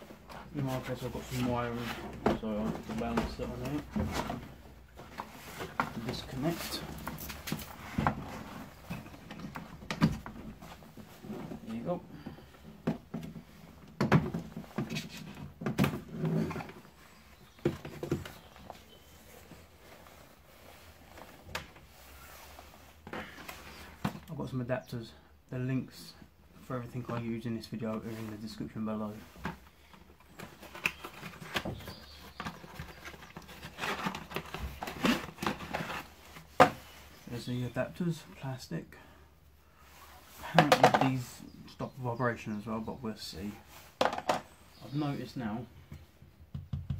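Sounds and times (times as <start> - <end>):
box handling rustles and clicks: 29.4 - 36.9.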